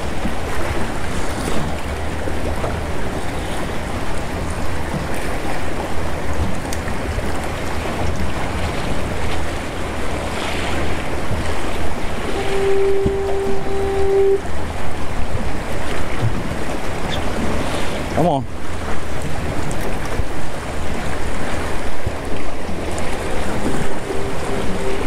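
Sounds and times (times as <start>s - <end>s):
sea water sloshing and lapping: 0.0s - 25.0s
foghorn low tone: 11.8s - 14.8s, 22.7s - 25.0s.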